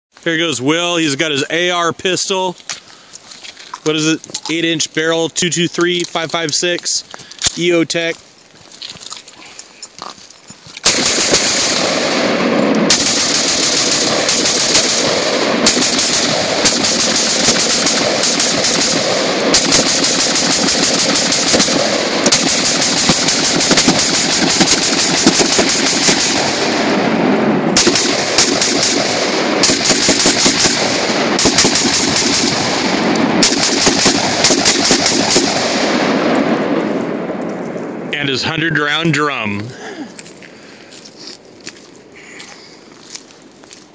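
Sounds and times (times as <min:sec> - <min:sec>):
rapid gunfire: 0:10.8 - 0:26.9, 0:27.8 - 0:36.3.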